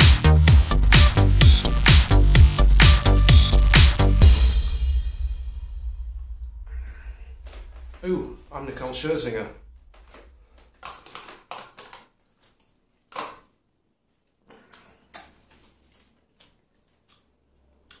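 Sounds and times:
mouth and breathing noises: 14.4 - 18.0.

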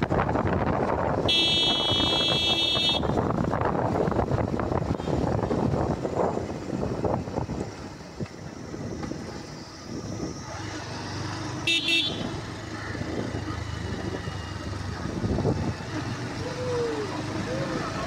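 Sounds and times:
motorcycle engine running: 0.0 - 18.0
road noise: 0.0 - 18.0
vehicle horn toots: 1.2 - 3.2, 11.7 - 12.3.

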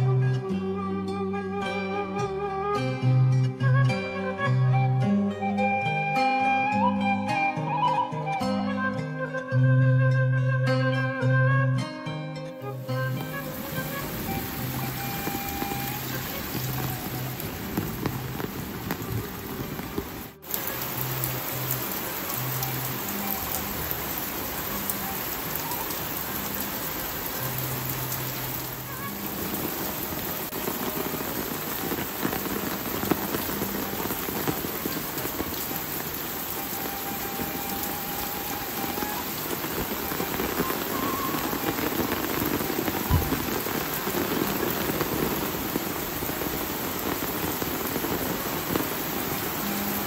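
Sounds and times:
steady rain patter: 12.6 - 50.0.

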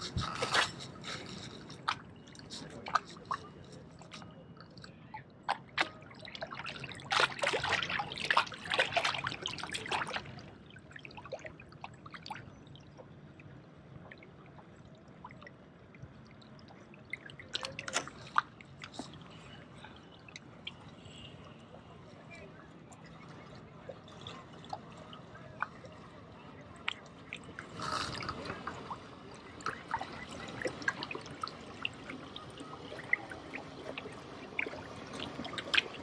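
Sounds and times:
seawater lapping among rocks: 0.0 - 36.0
water splashing and crackling: 0.0 - 36.0.

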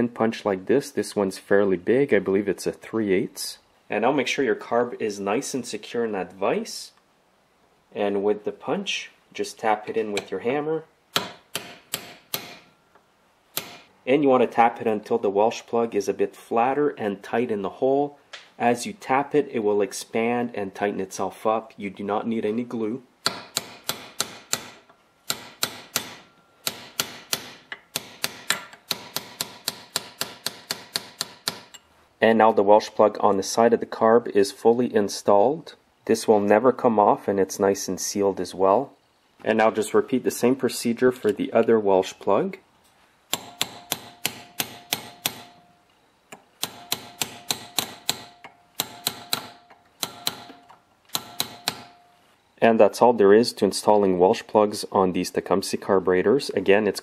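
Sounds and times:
hammer tapping metal punch: 11.1 - 12.7, 13.5 - 13.9, 23.2 - 31.8, 43.3 - 45.7, 46.3 - 52.1.

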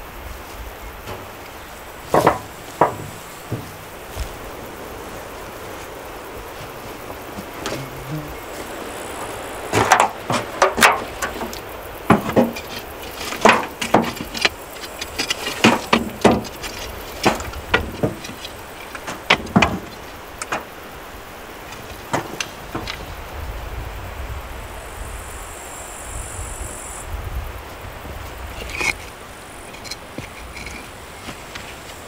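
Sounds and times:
low wind rumble: 0.0 - 32.0
metal knocks in steel barrel: 2.1 - 3.9, 9.7 - 20.7.

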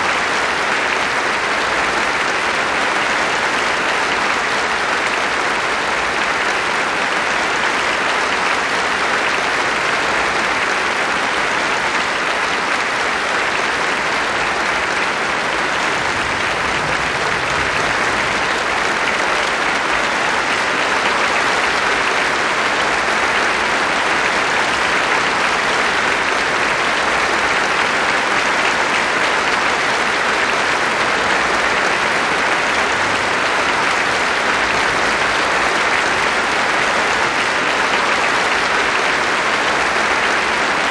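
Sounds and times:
audience applauding: 0.0 - 40.9.

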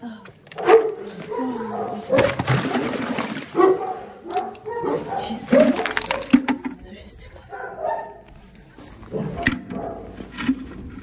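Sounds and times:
ice and water dumped from bucket: 2.2 - 3.6, 5.6 - 6.7
dogs whining and barking: 9.2 - 10.2.

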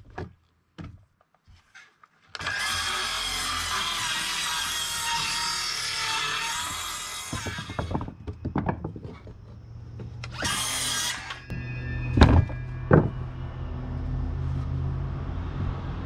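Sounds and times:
circular saw cutting wood: 2.4 - 8.0, 10.2 - 16.0
heavy thumps: 12.1 - 13.4.

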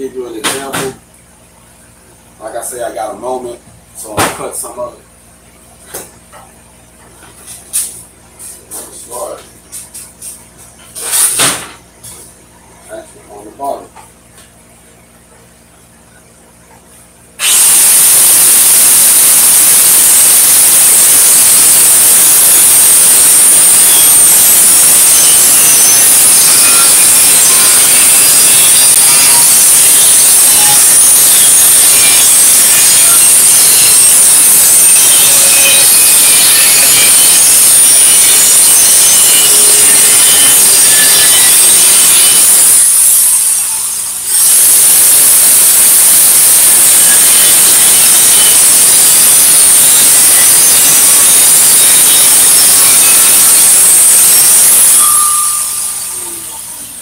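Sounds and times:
angle grinder cutting steel: 17.4 - 57.0.

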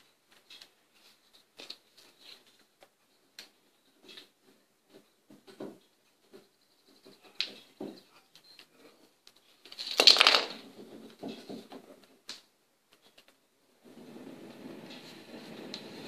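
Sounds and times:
plastic track pieces clicking: 9.7 - 10.6
rustling scrape: 13.8 - 16.0.

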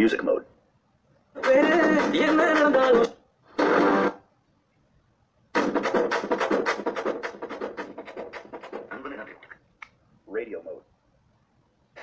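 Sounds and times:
song through tablet speaker: 1.3 - 4.3, 5.5 - 9.4.

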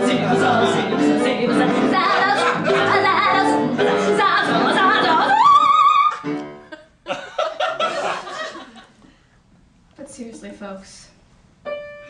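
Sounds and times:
soprano singing: 0.0 - 6.4
piano: 0.0 - 7.1, 11.6 - 12.0
audience laughing: 2.1 - 3.6, 6.7 - 9.0.

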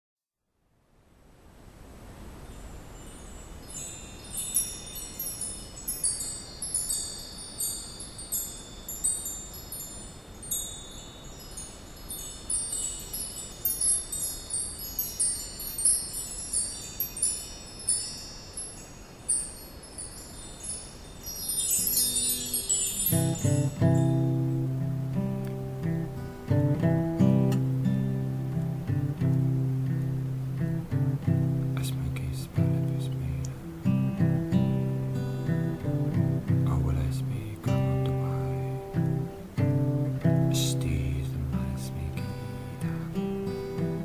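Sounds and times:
low rush of noise: 0.6 - 6.6, 21.8 - 44.0
wind chimes tinkling: 2.5 - 44.0
lower plucked notes: 23.1 - 44.0.

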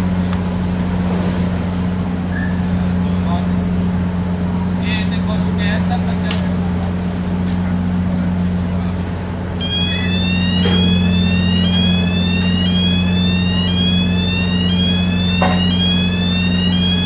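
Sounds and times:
ferry engine humming: 0.0 - 17.0
rising electronic warning tone: 9.6 - 17.0.

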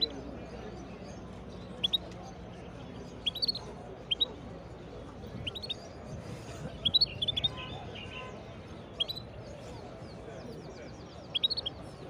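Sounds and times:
finch chirping: 1.8 - 2.0, 3.1 - 4.3, 5.4 - 5.8, 6.8 - 8.0, 11.2 - 12.0.

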